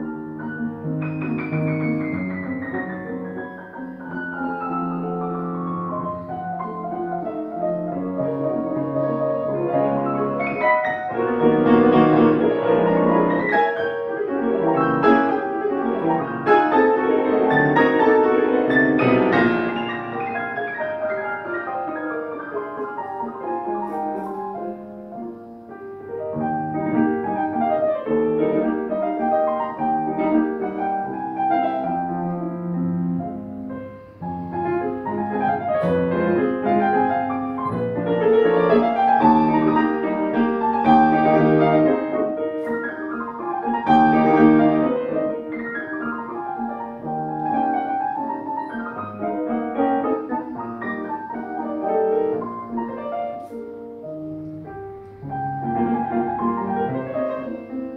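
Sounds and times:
solo piano piece: 0.0s - 57.9s.

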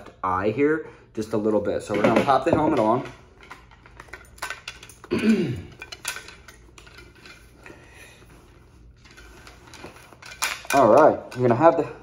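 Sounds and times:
helmet handling clicks and rustles: 1.9s - 7.7s, 9.0s - 11.7s.

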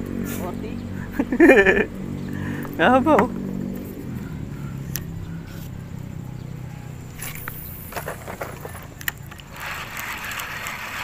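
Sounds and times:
steady hiss: 7.0s - 11.0s
handling clicks and scraping: 7.2s - 11.0s.

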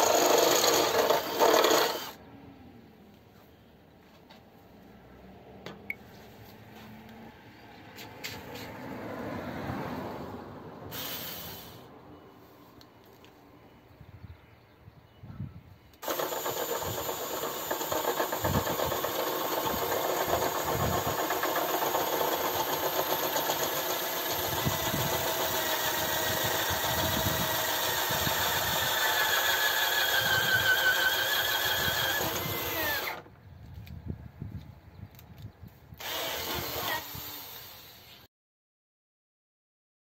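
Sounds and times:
electric drill boring wood: 0.0s - 2.2s, 16.0s - 33.2s, 36.0s - 38.3s.

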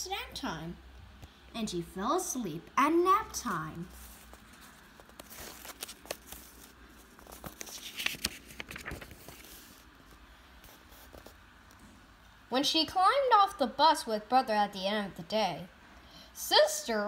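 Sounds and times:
paper pages rustling: 3.5s - 11.4s.

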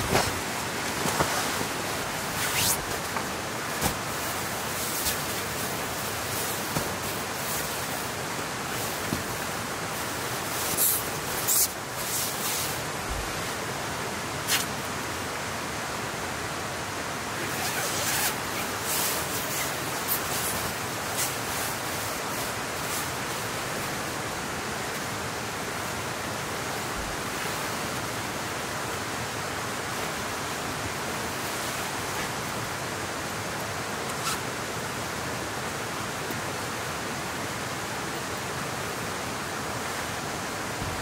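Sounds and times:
rain hissing: 0.0s - 13.6s, 17.2s - 26.0s.

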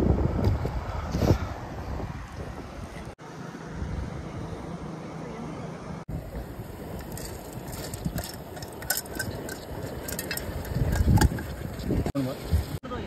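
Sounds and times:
wind on microphone: 0.0s - 3.2s, 6.1s - 12.8s.

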